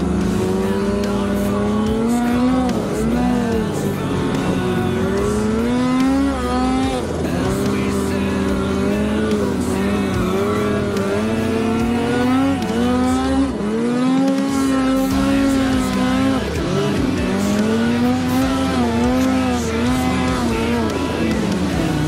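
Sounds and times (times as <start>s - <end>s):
snowmobile engine revving: 0.0s - 22.0s.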